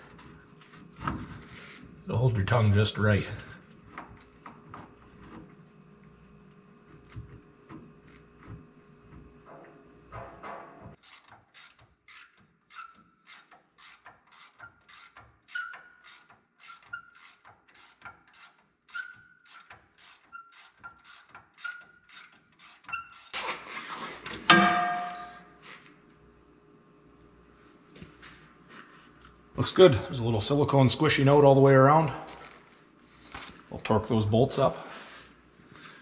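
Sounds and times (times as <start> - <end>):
hand ratchet clicking: 11.0 - 23.4.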